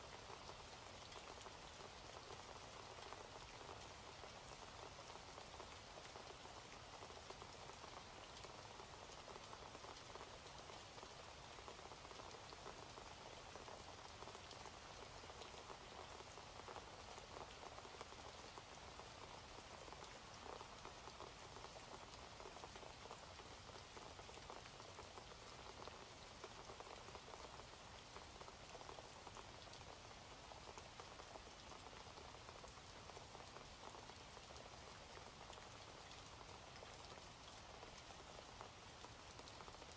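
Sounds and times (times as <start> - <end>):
faint steady rain: 0.0 - 39.9.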